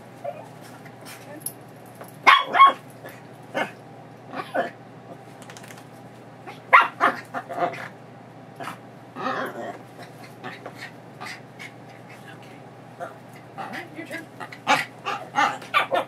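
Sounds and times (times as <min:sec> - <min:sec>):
small dog barking and yipping: 0:02.2 - 0:02.9, 0:06.5 - 0:07.4, 0:14.6 - 0:16.0
dog whining: 0:09.2 - 0:10.6.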